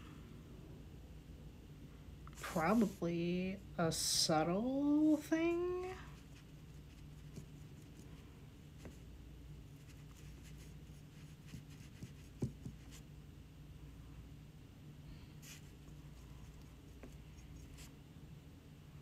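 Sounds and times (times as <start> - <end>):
low room hum: 0.0 - 19.0
paintbrush strokes on ceramic: 2.4 - 3.2.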